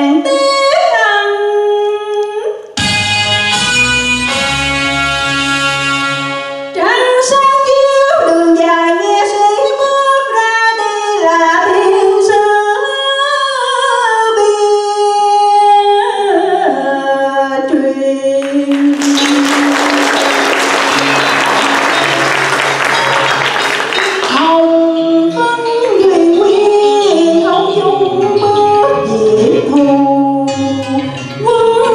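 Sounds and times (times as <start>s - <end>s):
woman singing into a microphone: 0.0s - 2.7s, 6.8s - 19.7s, 24.3s - 31.9s
audience applause: 18.4s - 24.4s
accompaniment chord: 18.8s - 24.4s.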